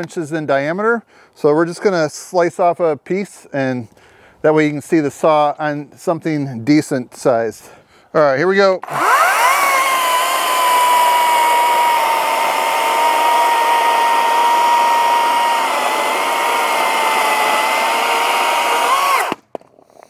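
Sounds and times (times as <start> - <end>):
chainsaw cutting through log: 8.8 - 19.5.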